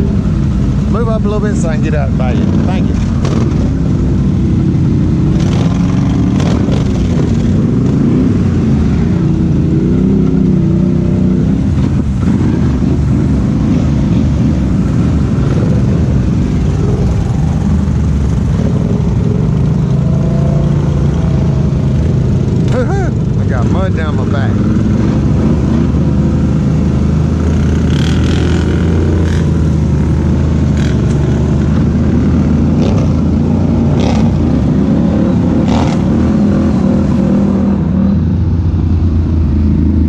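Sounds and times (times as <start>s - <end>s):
atv engines revving: 0.0s - 40.0s.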